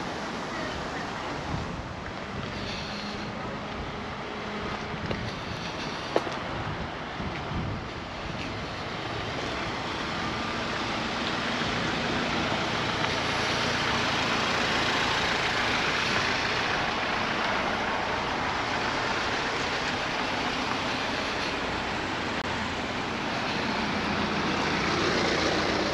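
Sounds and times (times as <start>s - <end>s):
steady traffic noise: 0.0s - 25.9s
vehicle passing close by: 8.6s - 25.9s.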